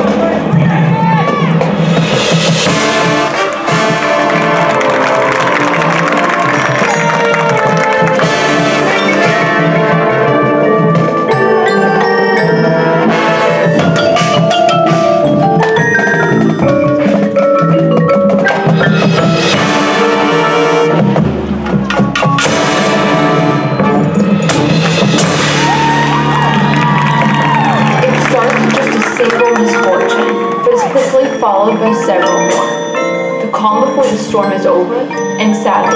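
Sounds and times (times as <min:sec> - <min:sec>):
marching band playing: 0:00.0 - 0:34.7
marimbas and mallet percussion: 0:04.2 - 0:20.6, 0:26.8 - 0:35.9.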